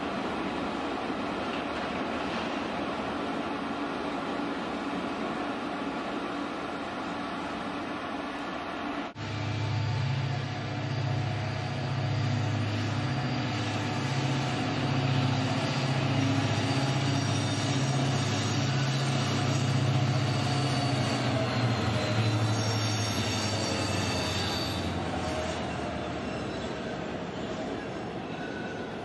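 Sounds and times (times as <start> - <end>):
diesel locomotive engine drone: 0.0 - 29.0
wheels rumbling on rail: 0.0 - 29.0
high wheel squeal: 10.8 - 29.0.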